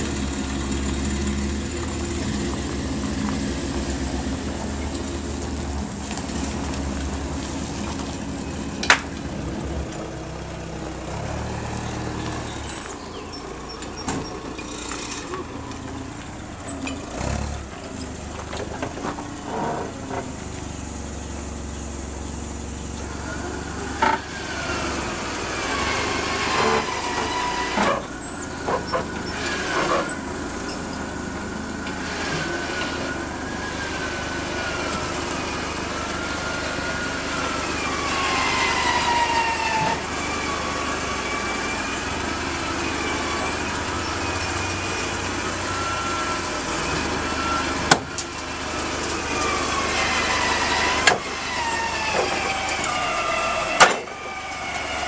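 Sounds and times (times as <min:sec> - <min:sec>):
forklift engine whine: 0:00.0 - 0:55.0.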